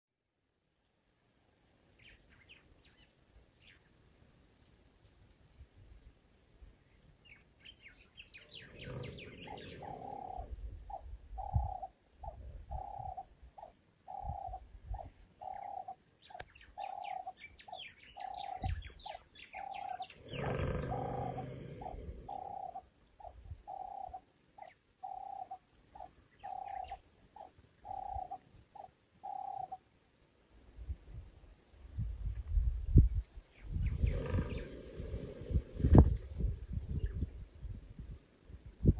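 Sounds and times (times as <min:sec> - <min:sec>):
small birds chirping: 0:02.0 - 0:04.0, 0:06.9 - 0:29.8, 0:33.4 - 0:35.5
elephant snoring: 0:08.6 - 0:10.5, 0:19.7 - 0:22.8, 0:33.9 - 0:36.0.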